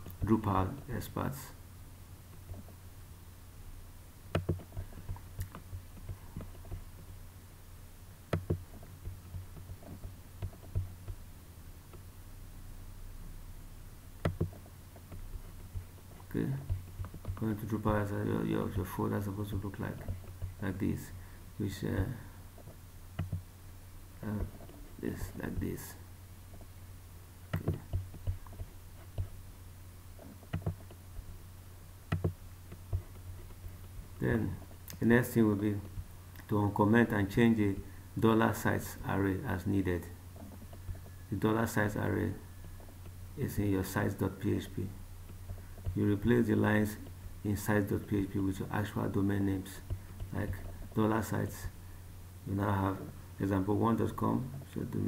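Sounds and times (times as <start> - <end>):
low steady hum: 0.0 - 55.0
computer mouse clicking: 4.3 - 7.1, 8.3 - 11.2, 14.2 - 15.8, 16.6 - 17.4, 22.6 - 23.4, 27.5 - 29.4, 30.2 - 31.0, 32.1 - 33.6.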